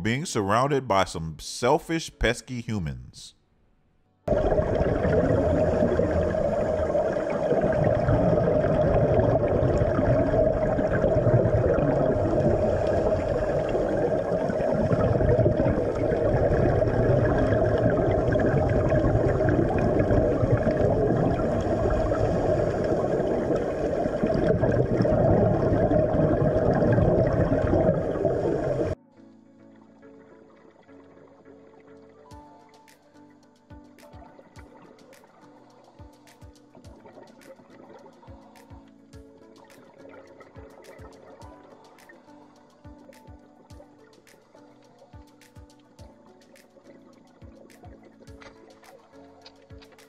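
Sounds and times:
underwater rushing noise: 0:04.3 - 0:29.0.

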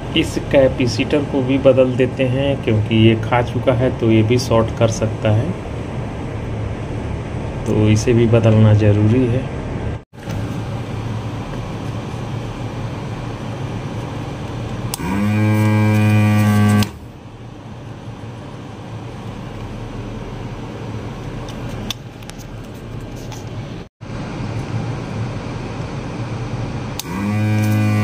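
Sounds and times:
desoldering pump buzzing: 0:13.7 - 0:17.2, 0:26.9 - 0:28.0.

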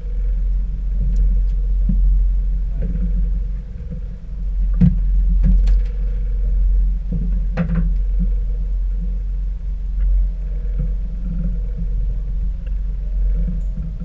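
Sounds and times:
boat outboard motors running: 0:00.0 - 0:14.0.

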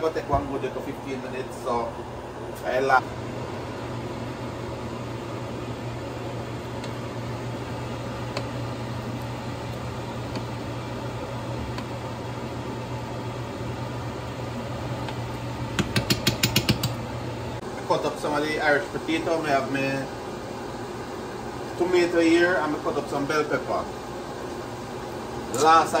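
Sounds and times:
kitchen fan hum: 0:00.0 - 0:26.0
metal spoon clicking in pot: 0:15.8 - 0:17.0.

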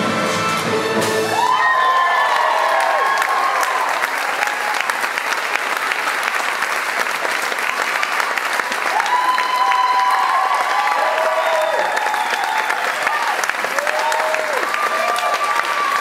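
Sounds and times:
audience applauding: 0:01.2 - 0:16.0
high whoops: 0:01.4 - 0:05.1, 0:08.9 - 0:16.0.

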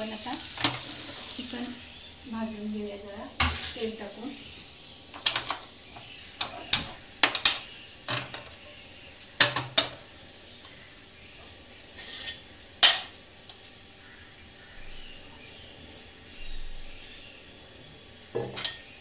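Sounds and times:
pan and utensil clinking on metal: 0:18.4 - 0:19.0.

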